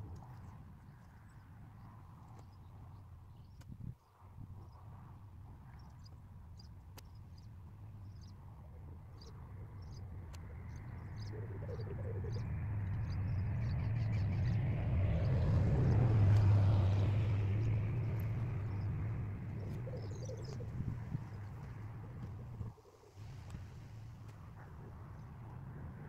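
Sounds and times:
faint bird chirps: 5.7s - 14.8s, 17.4s - 23.1s
boat engine humming: 11.2s - 25.0s.

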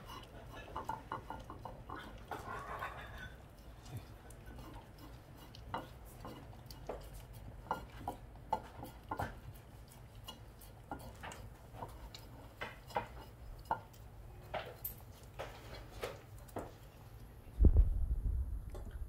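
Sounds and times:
dog licking a ceramic plate: 0.0s - 17.3s.

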